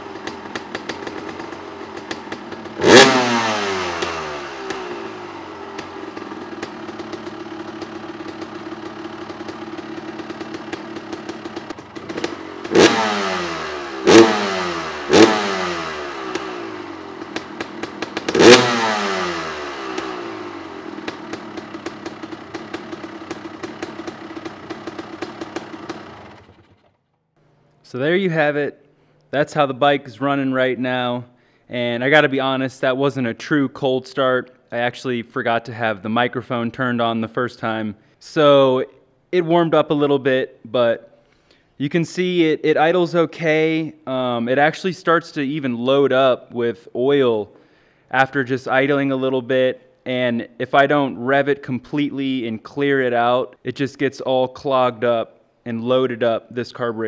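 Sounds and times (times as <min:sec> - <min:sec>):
two-stroke engine idling and revving: 0:00.0 - 0:27.0.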